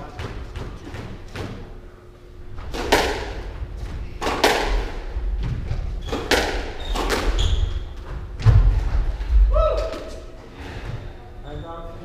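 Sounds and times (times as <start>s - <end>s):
squash ball hits echoing: 2.6s - 10.3s.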